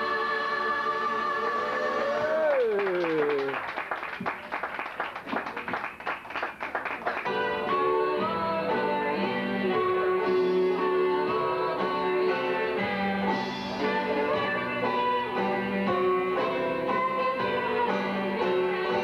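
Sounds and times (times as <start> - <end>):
pop music with guitar: 7.2 - 19.0.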